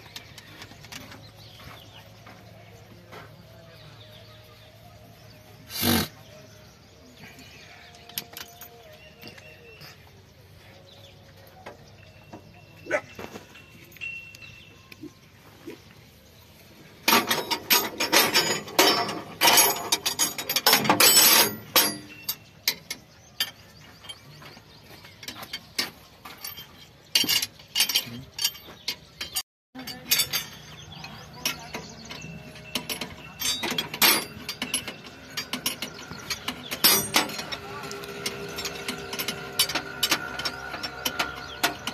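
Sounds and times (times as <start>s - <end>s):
metal tools clicking and clanking: 0.0s - 1.6s, 7.3s - 9.6s, 17.0s - 41.9s.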